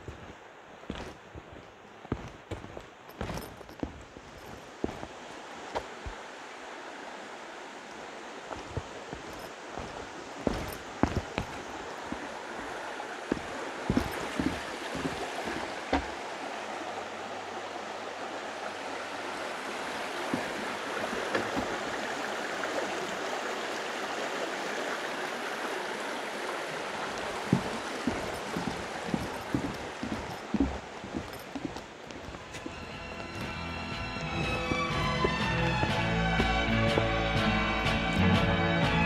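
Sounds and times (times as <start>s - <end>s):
footsteps on wooden boards: 0.0s - 6.3s, 7.9s - 16.4s, 19.7s - 22.2s, 27.0s - 38.1s
brook rushing over stones: 0.0s - 24.0s, 25.9s - 38.2s.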